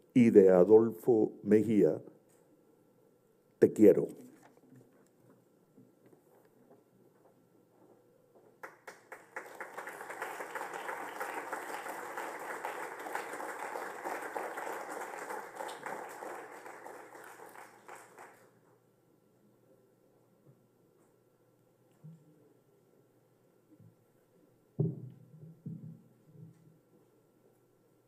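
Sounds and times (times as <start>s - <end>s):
audience applauding: 8.6s - 18.5s.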